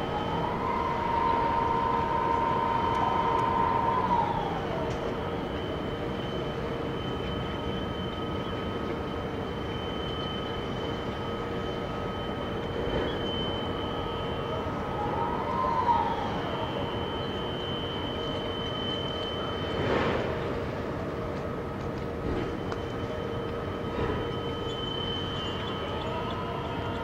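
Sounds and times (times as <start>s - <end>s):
crane electric whine: 0.0s - 27.0s
low machine rumble: 0.0s - 27.0s.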